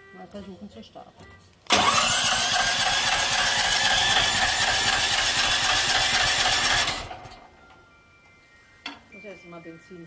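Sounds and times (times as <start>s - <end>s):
generator starter cranking engine: 1.7s - 7.5s.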